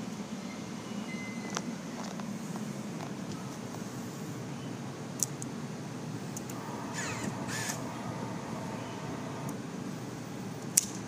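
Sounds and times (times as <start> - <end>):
low background noise: 0.0 - 11.0
brief whir: 6.4 - 9.6
fuel pump humming: 6.4 - 9.6.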